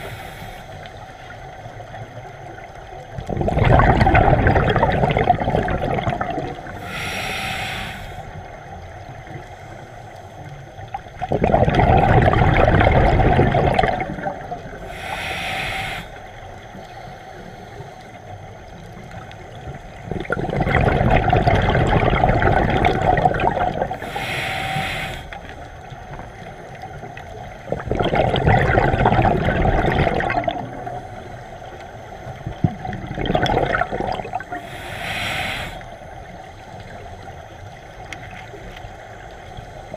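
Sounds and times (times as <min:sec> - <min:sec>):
regulator inhale hiss: 0:00.0 - 0:01.4, 0:06.6 - 0:08.7, 0:14.7 - 0:18.4, 0:23.9 - 0:25.8, 0:34.4 - 0:36.5
rush of bubbles: 0:02.2 - 0:08.5, 0:10.8 - 0:16.1, 0:20.0 - 0:24.9, 0:26.8 - 0:31.0, 0:32.4 - 0:35.8.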